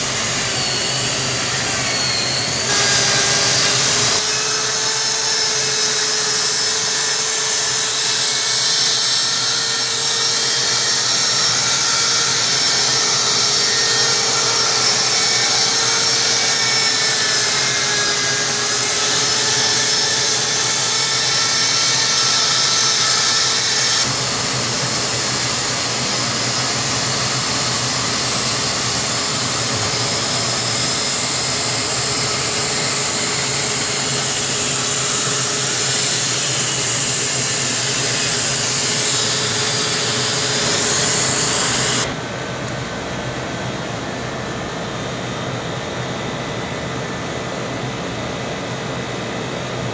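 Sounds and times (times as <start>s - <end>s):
power tool cutting ice: 0.0s - 42.2s.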